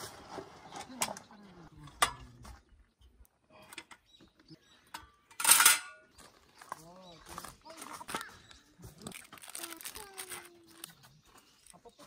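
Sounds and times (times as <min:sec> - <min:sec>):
metal clatter on gravel: 0:04.9 - 0:06.3.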